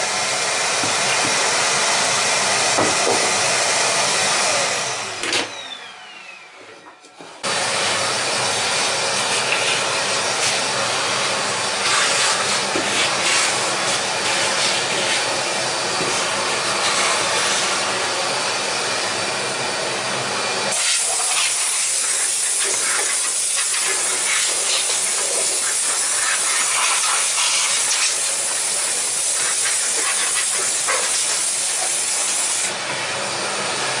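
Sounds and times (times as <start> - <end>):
workshop vacuum running: 0.0 - 34.0
compressed air blow gun hissing: 11.8 - 15.3, 20.7 - 32.7.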